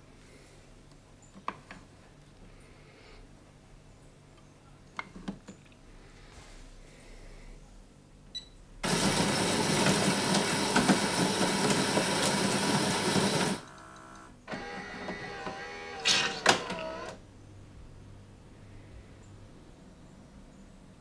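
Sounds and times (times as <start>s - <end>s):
grinder grinding coffee beans: 8.8s - 17.1s
coffee machine whirring: 8.8s - 17.2s.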